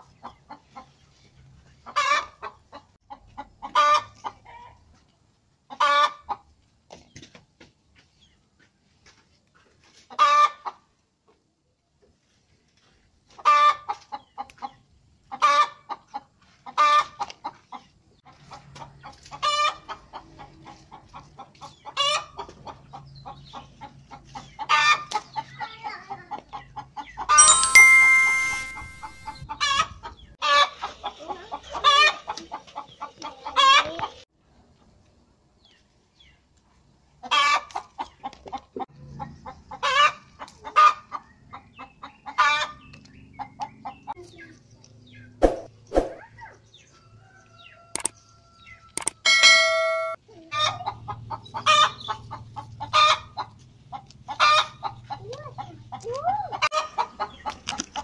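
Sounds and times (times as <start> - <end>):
chickens clucking: 0.0 - 6.6, 9.8 - 11.0, 13.3 - 25.6, 30.9 - 34.2, 50.4 - 58.0
short bell-like chime: 27.4 - 29.4.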